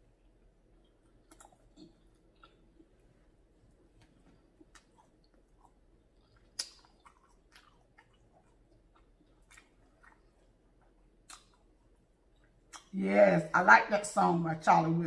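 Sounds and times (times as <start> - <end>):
close-up chewing of food: 0.0 - 12.9
soft mouth clicks: 6.3 - 7.6.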